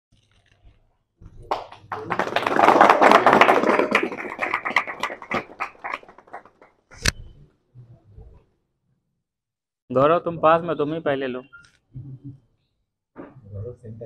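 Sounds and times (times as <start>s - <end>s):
group of people clapping: 1.4s - 7.0s.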